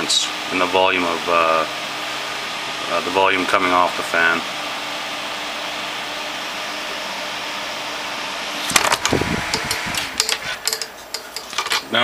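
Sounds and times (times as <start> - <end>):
fan rushing air: 0.0 - 12.0
fan knocking and rattling: 8.6 - 12.0.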